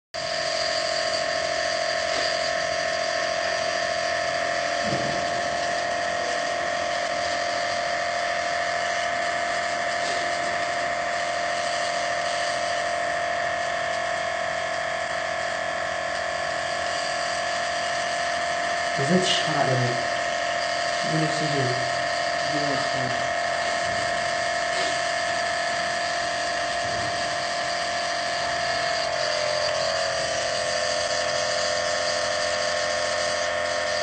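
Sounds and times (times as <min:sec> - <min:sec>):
electric motor humming: 0:00.2 - 0:34.0.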